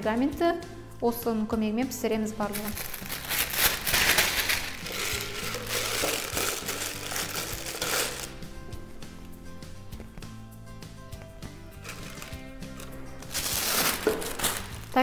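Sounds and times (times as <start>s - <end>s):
soft background music: 0.0s - 15.0s
plastic bag crinkling: 2.5s - 8.4s, 11.8s - 15.0s.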